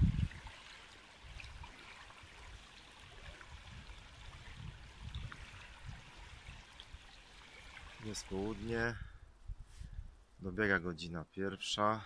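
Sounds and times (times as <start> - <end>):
river flowing over ripples: 0.0 - 8.8.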